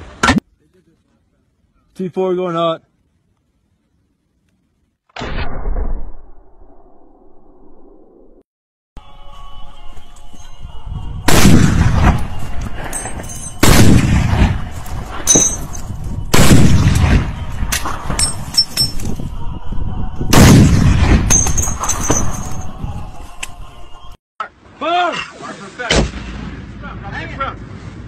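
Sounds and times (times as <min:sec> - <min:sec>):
heavy rifle shots: 0:11.3 - 0:12.3, 0:13.0 - 0:15.6, 0:16.3 - 0:18.0, 0:20.3 - 0:21.9.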